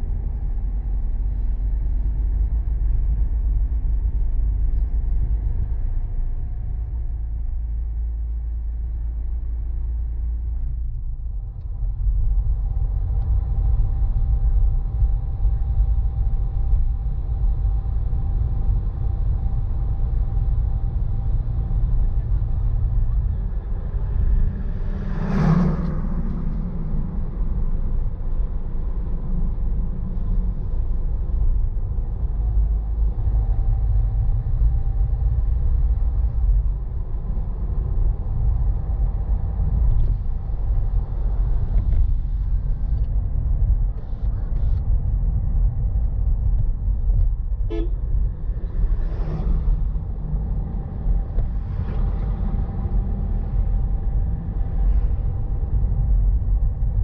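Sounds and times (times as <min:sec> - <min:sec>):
engine and road rumble: 0:00.0 - 0:57.0
vehicles whooshing past: 0:23.9 - 0:31.2, 0:47.7 - 0:55.7
short horn toot: 0:47.7 - 0:48.0.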